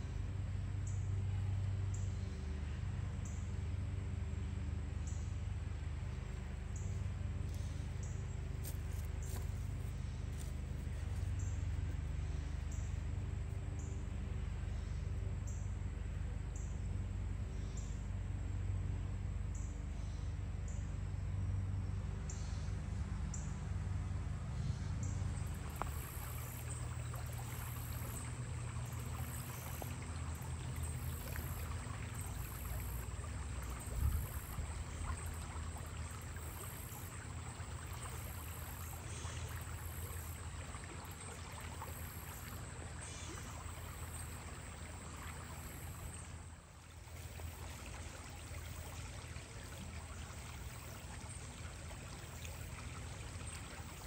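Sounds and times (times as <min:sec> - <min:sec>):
low steady hum: 0:00.0 - 0:54.0
water running and trickling: 0:25.5 - 0:54.0.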